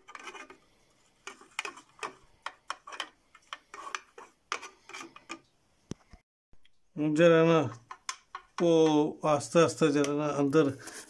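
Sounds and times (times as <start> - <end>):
toothbrush scrubbing plastic tub: 0.0 - 5.4.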